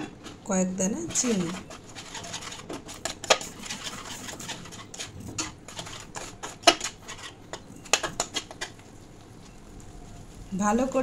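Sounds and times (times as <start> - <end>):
spatula scraping metal pan: 0.0 - 8.8.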